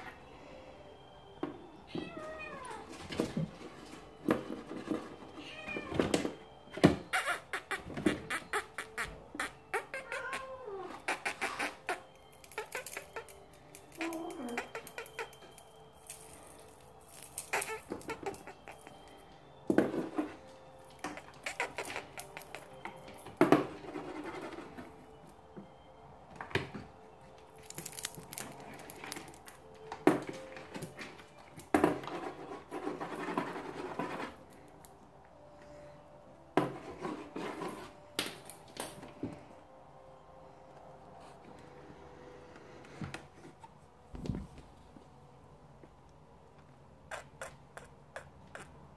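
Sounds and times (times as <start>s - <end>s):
kittens scratching cardboard: 21.0s - 25.1s, 31.8s - 34.5s.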